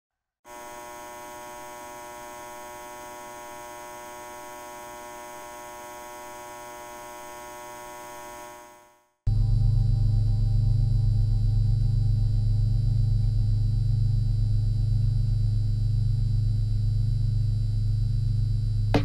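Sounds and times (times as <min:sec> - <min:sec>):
neon sign buzzing hum: 0:00.5 - 0:09.1, 0:12.9 - 0:19.0.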